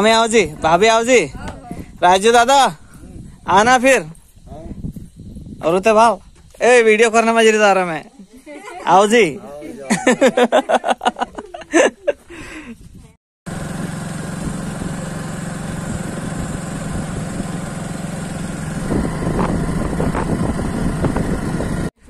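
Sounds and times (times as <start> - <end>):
wind rush: 0.1 - 6.4, 18.4 - 21.9
motorcycle engine running: 13.5 - 21.9.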